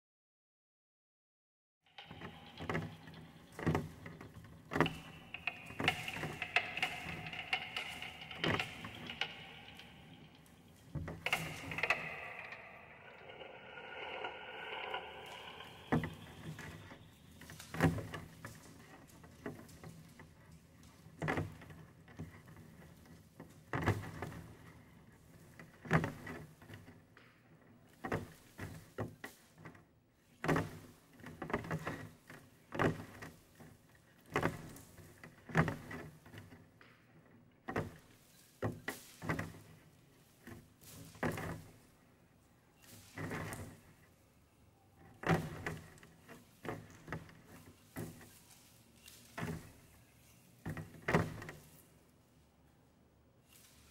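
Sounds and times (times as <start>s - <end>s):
knocks and thumps: 2.0s - 18.7s.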